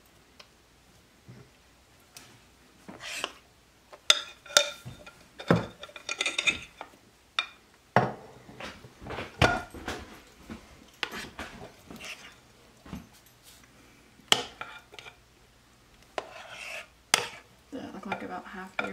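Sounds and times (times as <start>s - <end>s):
spoon scraping mixing bowl: 2.9s - 3.4s, 11.0s - 12.4s, 16.1s - 18.9s.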